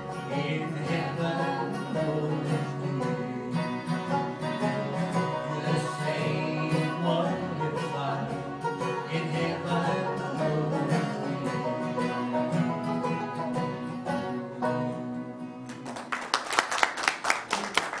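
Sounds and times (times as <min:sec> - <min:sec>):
acoustic string band playing: 0:00.0 - 0:16.1
hand clapping: 0:15.7 - 0:18.0.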